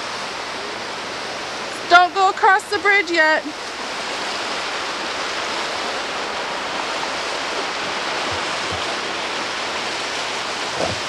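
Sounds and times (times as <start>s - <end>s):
creek water flowing: 0.0s - 11.0s
soft low thumps: 8.2s - 9.1s, 10.7s - 11.0s.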